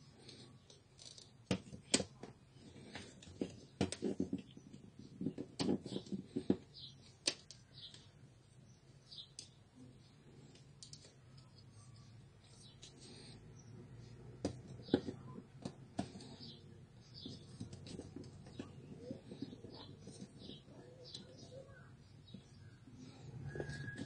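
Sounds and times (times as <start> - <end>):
plastic rattling and knocking: 3.0 - 6.7.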